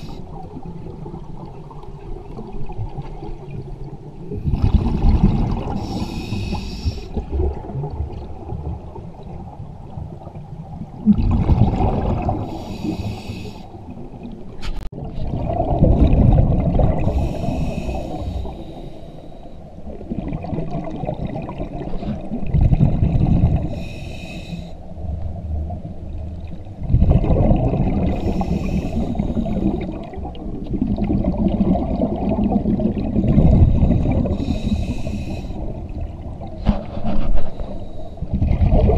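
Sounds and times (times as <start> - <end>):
regulator hiss on inhale: 0.0 - 0.3, 5.8 - 7.2, 12.4 - 13.8, 17.0 - 19.7, 23.7 - 24.9, 28.1 - 30.0, 33.7 - 35.8, 37.4 - 38.3
exhaust bubbles rumbling: 4.3 - 6.0, 7.2 - 12.6, 15.0 - 17.5, 19.9 - 23.8, 25.5 - 34.6, 38.2 - 38.9.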